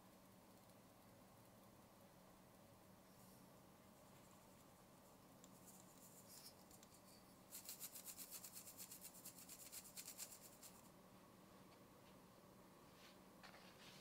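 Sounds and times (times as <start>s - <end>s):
salt grains pattering on flour: 5.4s - 10.9s
flour pouring hiss: 7.5s - 10.9s.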